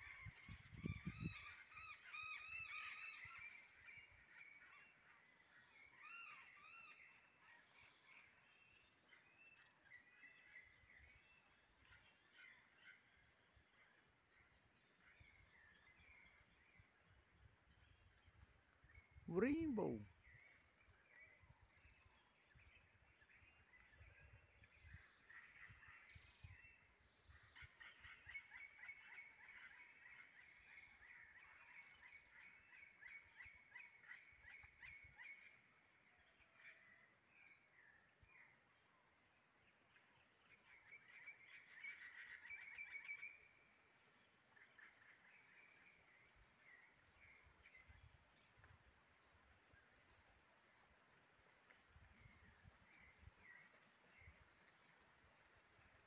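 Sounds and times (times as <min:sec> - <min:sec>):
wind buffeting microphone: 0:00.4 - 0:01.3.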